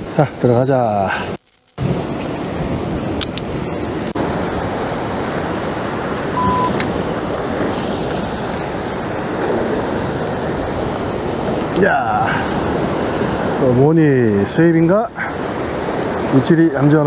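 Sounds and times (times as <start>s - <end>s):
surf breaking on rocks: 1.8s - 17.0s
wind on microphone: 1.8s - 17.0s
short high beep: 6.4s - 6.8s.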